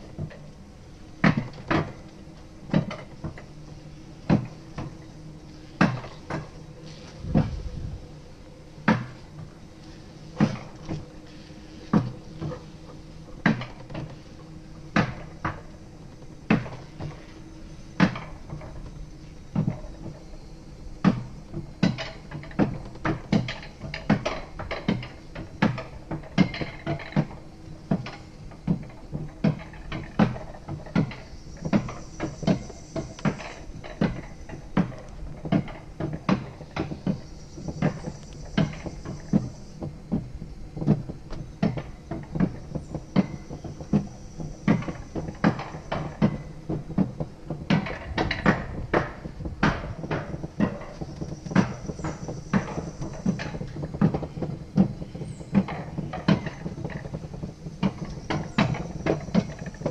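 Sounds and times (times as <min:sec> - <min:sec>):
faint high whine: 0:00.0 - 0:23.8
ride cart wheels knocking: 0:00.0 - 0:59.9
low rumble: 0:03.7 - 0:13.4.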